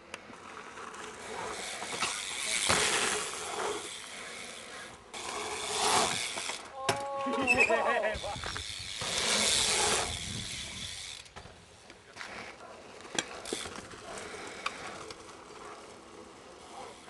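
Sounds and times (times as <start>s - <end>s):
bike hub ratcheting: 1.3s - 11.5s, 13.1s - 15.5s.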